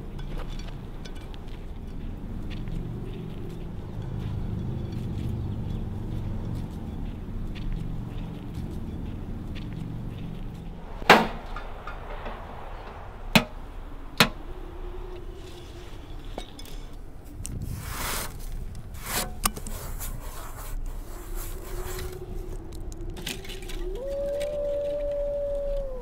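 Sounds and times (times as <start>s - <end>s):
short whoosh: 10.7s - 16.2s.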